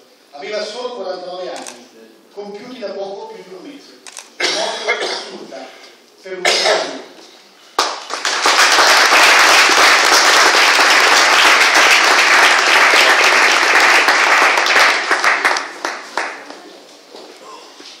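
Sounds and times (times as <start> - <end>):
audience applauding: 7.8 - 16.6.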